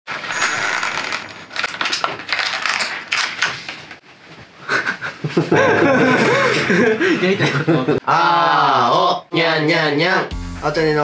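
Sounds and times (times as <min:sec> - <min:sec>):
plastic packaging crinkling: 0:00.1 - 0:04.0.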